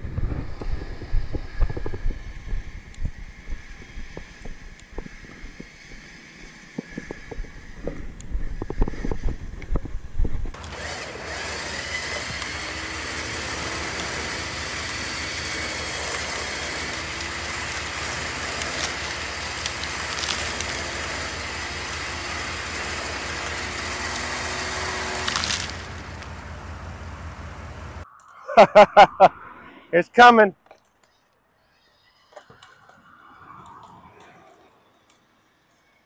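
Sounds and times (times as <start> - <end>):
electric winch motor hum: 10.5 - 28.0.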